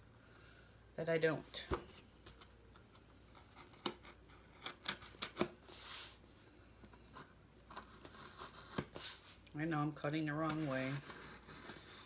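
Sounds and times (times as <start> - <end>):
knife clicking and scraping cardboard: 3.3 - 5.6, 7.1 - 9.2, 10.4 - 12.0.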